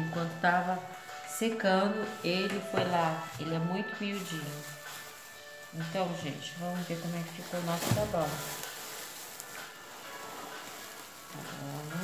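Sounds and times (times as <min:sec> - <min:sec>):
cling film crinkling: 0:03.8 - 0:12.0.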